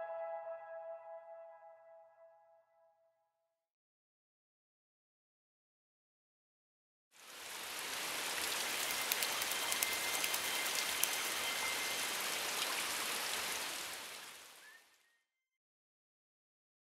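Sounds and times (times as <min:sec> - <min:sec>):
rain-like hiss with crackles: 0:07.2 - 0:15.0.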